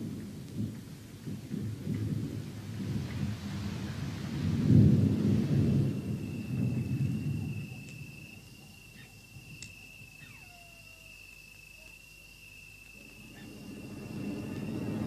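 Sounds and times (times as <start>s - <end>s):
rolling thunder: 0.0s - 11.2s, 13.0s - 15.0s
high cricket-like chirr: 0.0s - 15.0s
falling whistle: 5.7s - 15.0s
low rumble: 13.0s - 15.0s.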